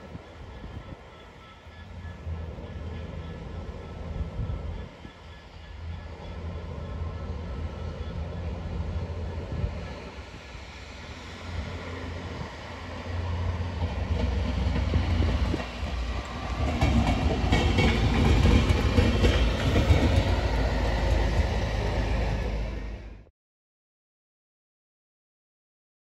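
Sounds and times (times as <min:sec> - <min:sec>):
rail vehicle engine rumble: 0:00.0 - 0:23.3
wheels clicking over rail joints: 0:13.6 - 0:22.8.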